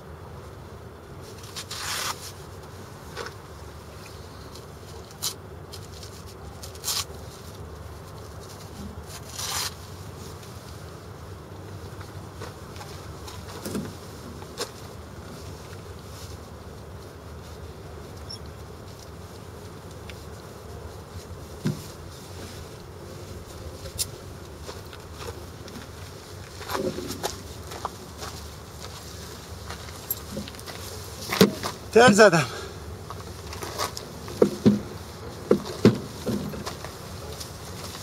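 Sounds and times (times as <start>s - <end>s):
harness gear rustles and clicks: 11.6s - 31.9s, 33.0s - 38.0s
boots scuffing on gravel: 24.5s - 34.1s.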